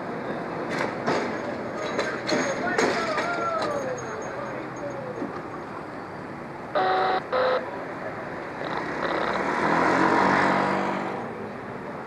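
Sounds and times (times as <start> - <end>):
streetcar rolling past: 0.0 - 12.0
horn honks: 6.8 - 7.7.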